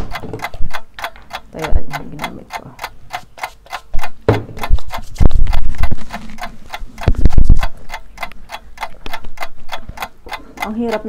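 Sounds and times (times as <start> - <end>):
clock ticking: 0.0 - 11.0
heavy low thuds: 4.2 - 7.7.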